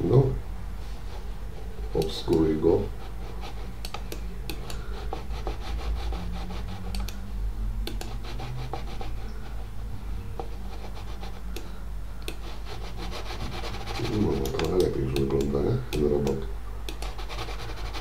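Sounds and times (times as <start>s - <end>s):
steady low hum: 0.0s - 18.0s
computer mouse sliding on desk: 1.1s - 7.2s, 7.9s - 9.8s, 10.4s - 11.7s, 12.3s - 14.9s
light mouse clicks: 3.8s - 4.9s, 6.9s - 7.2s, 7.8s - 8.2s, 11.5s - 12.4s, 14.4s - 17.2s.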